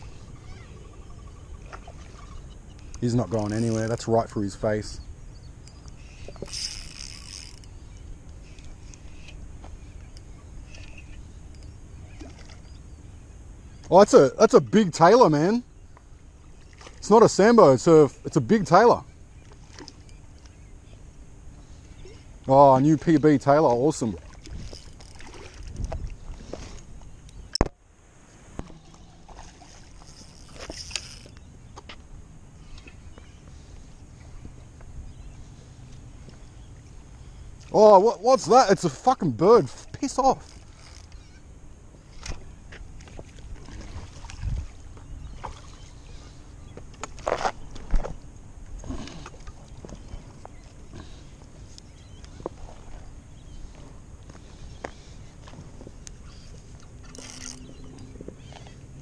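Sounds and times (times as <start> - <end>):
water lapping at seawall: 0.0 - 2.9, 23.9 - 27.0, 28.3 - 31.3, 42.1 - 59.0
rustle and scrape of handling: 48.9 - 58.8.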